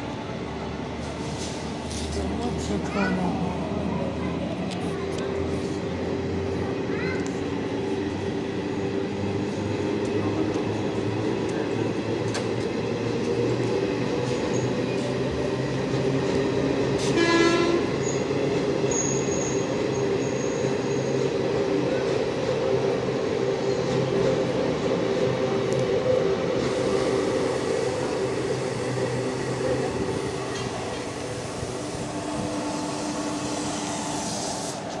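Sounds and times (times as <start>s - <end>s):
train wheels rumbling on rail: 0.0s - 35.0s
train horn blast: 17.0s - 18.0s.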